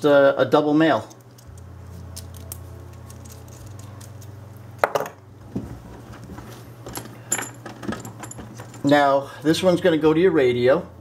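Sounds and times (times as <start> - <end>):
steady low hum: 0.0 - 11.0
small metal connectors clicking: 1.1 - 4.3
metal clatter: 6.8 - 8.9.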